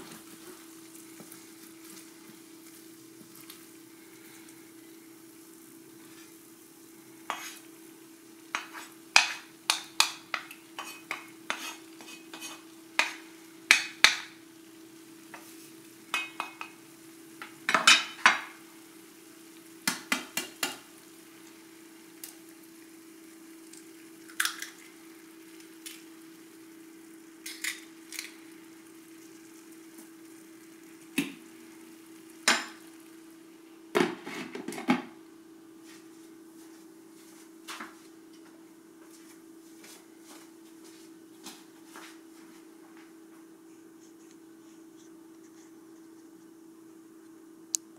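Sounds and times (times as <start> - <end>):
steady hum: 0.0 - 47.9
glass lid clattering on skillet: 17.7 - 18.5.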